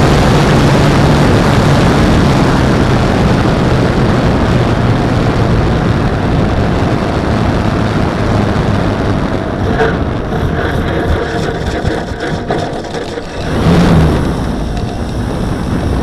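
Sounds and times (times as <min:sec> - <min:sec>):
low propeller hum: 0:00.0 - 0:16.0
wind rush over camera: 0:06.2 - 0:16.0.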